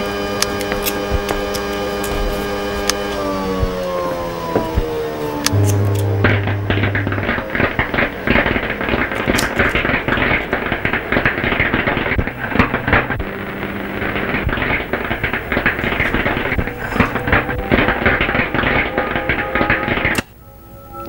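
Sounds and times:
faint low hum: 5.5 - 9.0
electrical crackling and sparking: 5.5 - 20.3.

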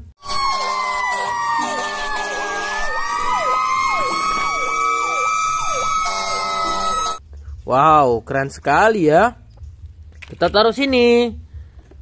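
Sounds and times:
siren steady wail: 0.2 - 7.2
siren sweeping downward: 0.2 - 7.2
low horn-like tone: 0.3 - 4.6.

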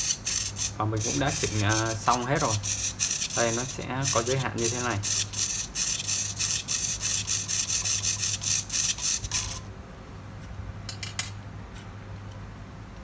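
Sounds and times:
servo gears whirring: 0.0 - 9.7.

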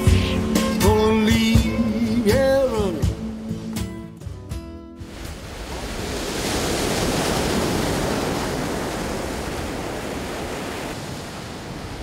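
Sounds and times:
surf breaking on rocky shore: 5.0 - 12.0.

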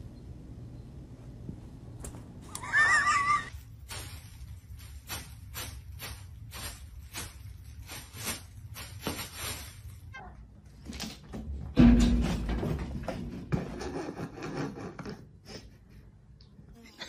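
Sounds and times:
high wavering animal cry: 2.5 - 3.5.

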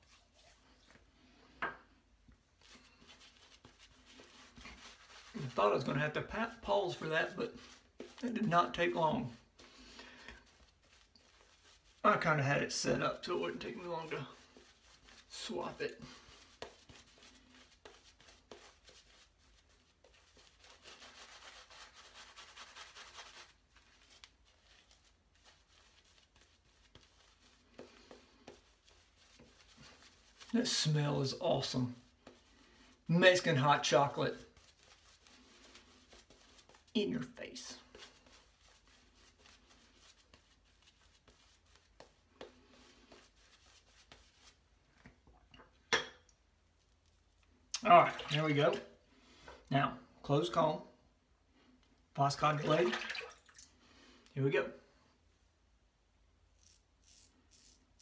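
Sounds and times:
shaving brush wet rubbing: 0.0 - 1.1, 2.6 - 44.7, 47.8 - 48.9, 56.5 - 58.0.

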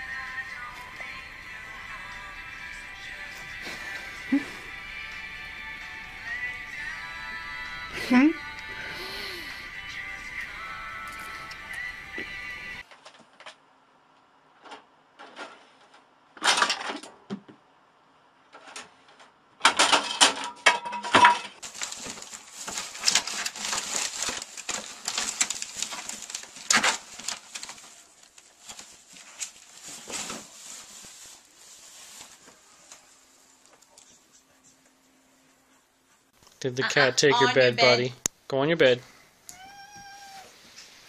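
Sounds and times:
plastic bag rustling and crinkling: 21.6 - 34.1.

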